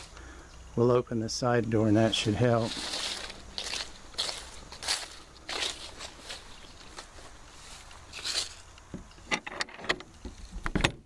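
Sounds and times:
footsteps on leaves and grass: 0.0s - 0.2s, 1.4s - 8.9s.

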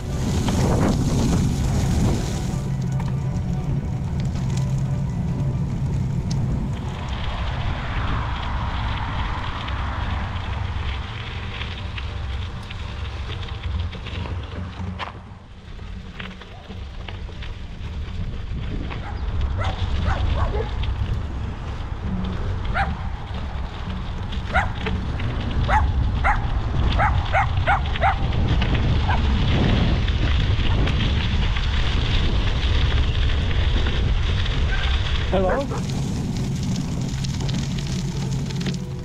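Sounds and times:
bicycle tyres crunching on gravel: 0.0s - 39.0s
wind rumbling on microphone: 0.0s - 39.0s
dog barking: 19.0s - 20.7s, 25.7s - 26.4s, 27.0s - 28.2s.

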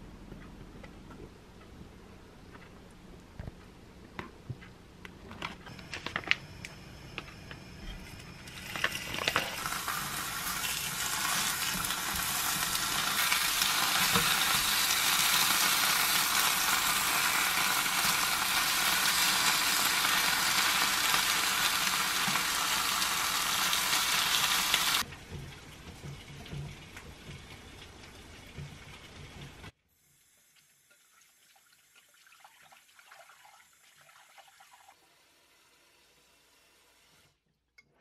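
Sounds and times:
duck sizzling in a pan: 8.3s - 25.1s.

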